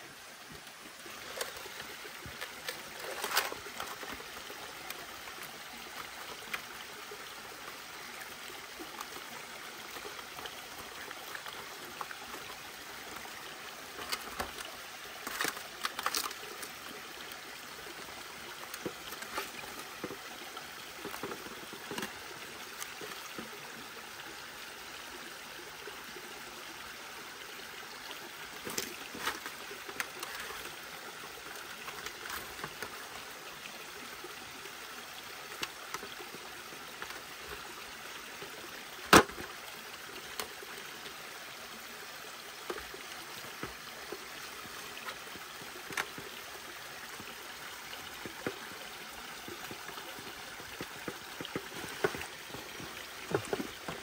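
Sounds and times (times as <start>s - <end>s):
stream flowing: 0.0s - 54.0s
small clicks and knocks: 0.5s - 5.0s, 13.9s - 16.9s, 18.6s - 23.6s, 28.6s - 30.8s, 44.6s - 46.4s, 48.0s - 48.7s, 49.4s - 54.0s.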